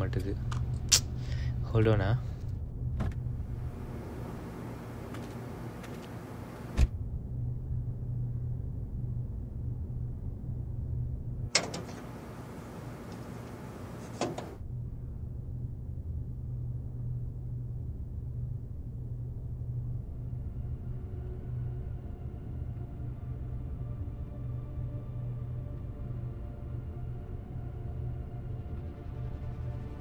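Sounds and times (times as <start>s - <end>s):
steady low hum: 0.0s - 30.0s
outside hiss: 3.6s - 6.8s, 11.5s - 14.6s
car door shutting thud: 5.1s - 7.0s, 11.6s - 14.6s
car door latch click: 11.6s - 14.6s.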